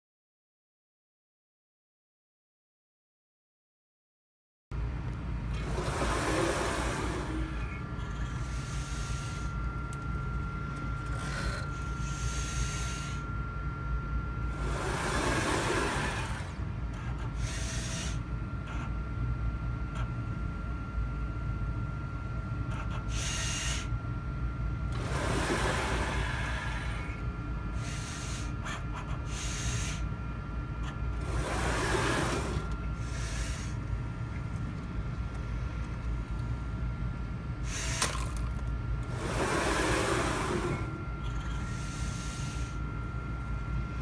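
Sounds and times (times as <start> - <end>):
robot hum with high whine: 4.8 - 44.0
rushing motor sounds: 5.5 - 9.6, 14.4 - 18.2, 24.9 - 30.0, 30.8 - 33.8, 37.6 - 42.8.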